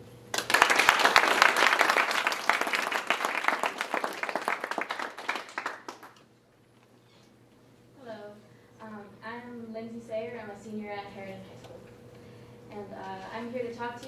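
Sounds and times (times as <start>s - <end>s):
audience applauding: 0.3s - 6.2s.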